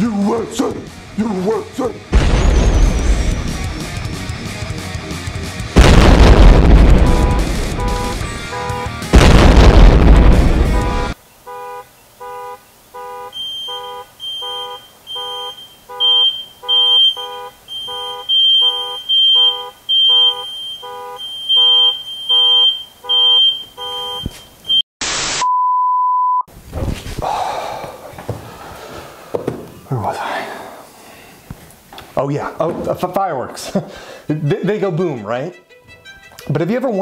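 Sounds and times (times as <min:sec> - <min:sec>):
electronic beeping: 0:13.4 - 0:24.8.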